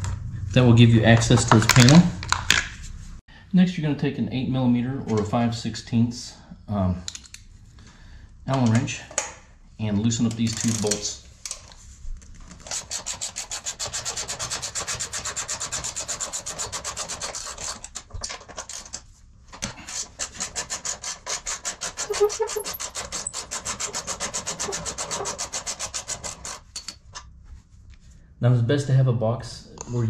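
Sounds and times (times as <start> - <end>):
hand ratchet clicking rapidly: 21.6 - 26.5.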